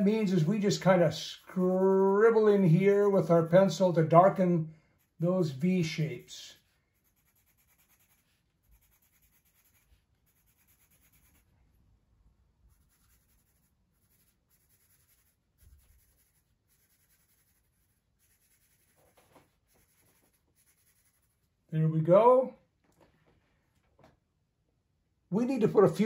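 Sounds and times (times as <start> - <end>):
pencil scratching on paper: 0.0 - 3.6, 5.0 - 11.5, 12.7 - 21.5.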